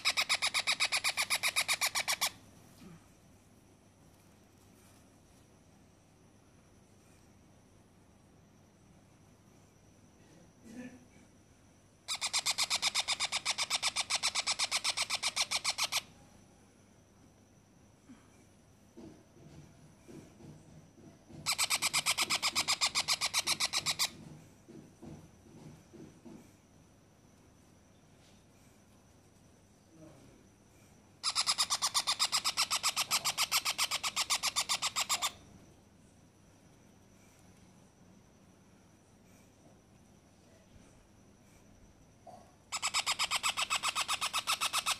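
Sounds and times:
parrot chick harsh begging chirps: 0.0 - 2.4, 12.1 - 16.1, 21.4 - 24.2, 31.2 - 35.4, 42.7 - 44.9.

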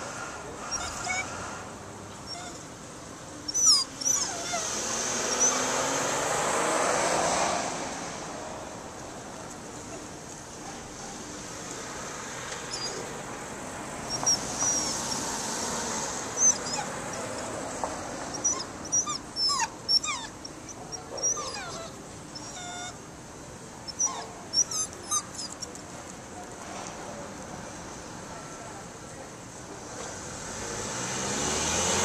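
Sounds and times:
small dog whimpering: 0.7 - 1.3, 2.3 - 2.7, 3.5 - 5.8, 12.7 - 13.1, 14.1 - 15.2, 16.4 - 17.5, 18.3 - 23.0, 23.9 - 25.8.

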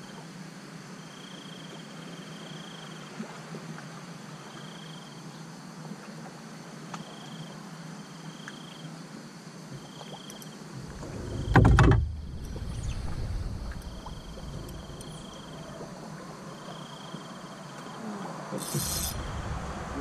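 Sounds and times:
insects trilling: 0.0 - 3.2, 4.5 - 5.8, 6.4 - 20.0
thump and clicks in boat: 9.8 - 15.5
low rumble: 10.8 - 16.7, 18.8 - 20.0.

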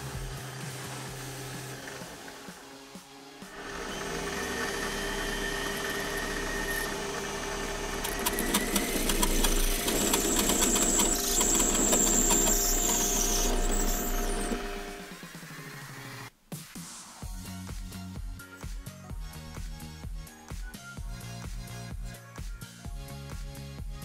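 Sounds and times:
lathe motor whining: 0.0 - 16.3.

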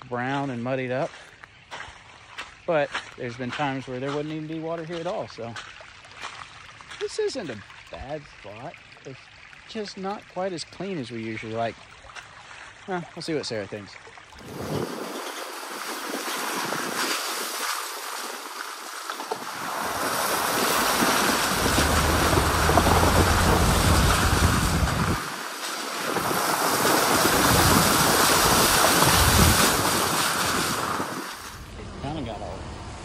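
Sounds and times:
tyres on wet ground: 0.0 - 33.0
wind on microphone: 14.4 - 17.6, 19.3 - 31.7
truck engine low hum: 20.8 - 25.2.

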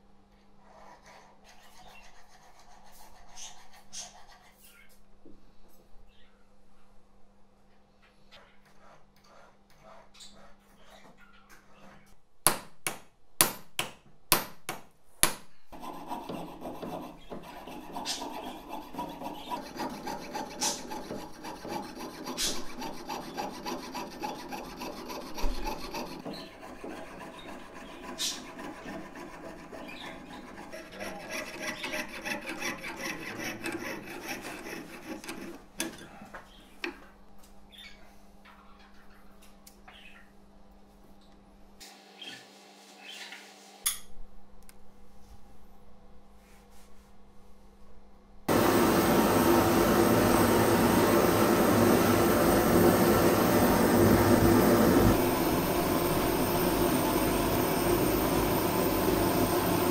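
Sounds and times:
saw rasping through metal sheet: 15.8 - 35.7, 48.5 - 59.9.

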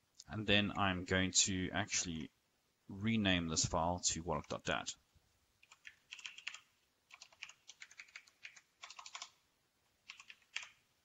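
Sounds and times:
keyboard typing: 5.6 - 9.4, 10.0 - 10.8.

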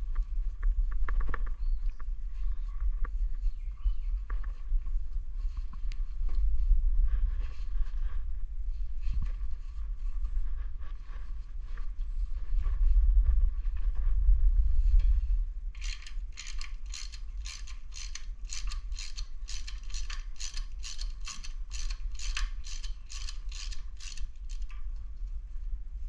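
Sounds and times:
low rumble: 0.0 - 16.7
ratchet wrench clicking: 15.8 - 24.8.

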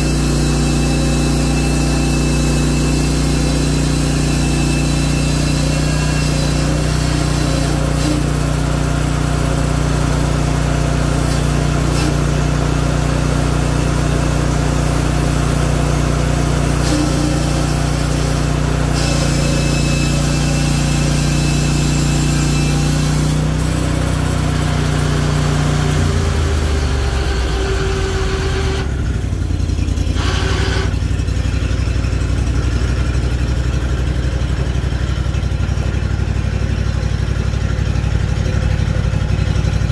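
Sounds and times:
band blade cutting log: 0.0 - 14.3, 14.9 - 29.0
sawmill engine running: 0.0 - 39.9.

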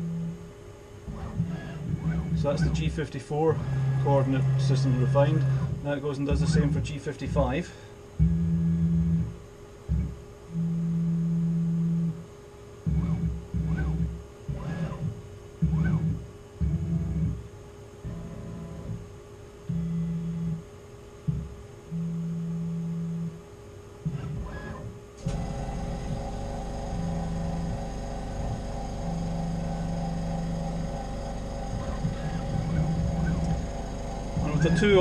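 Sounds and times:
steady mechanical running noise: 0.0 - 35.0
stepper motors whining: 1.0 - 7.6, 12.9 - 17.4, 18.0 - 19.1, 24.0 - 35.0.

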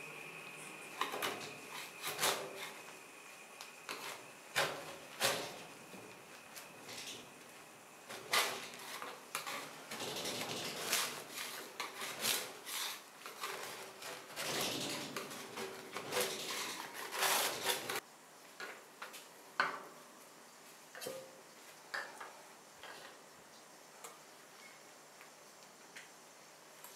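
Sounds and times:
metal spatula scraping steel plate: 8.1 - 18.0.

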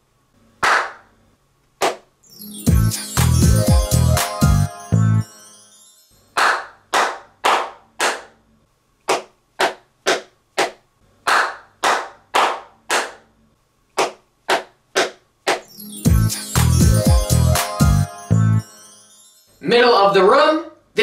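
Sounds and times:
hand claps with echo: 0.6 - 1.1, 1.8 - 2.1, 6.4 - 8.4, 9.1 - 13.3, 14.0 - 15.7
dampened hand claps: 1.8 - 2.1, 6.4 - 8.3, 9.1 - 13.2, 14.0 - 15.7.

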